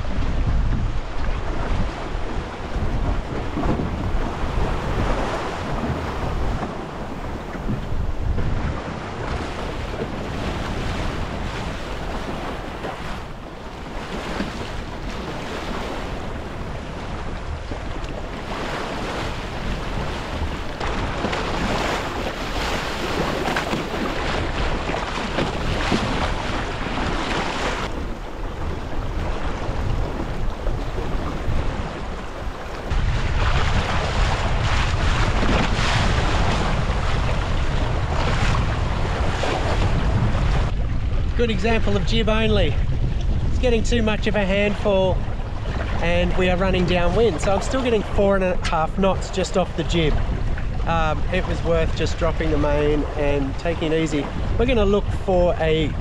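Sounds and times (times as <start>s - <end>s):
water rushing along hull: 0.0s - 56.0s
wind buffeting microphone: 0.0s - 56.0s.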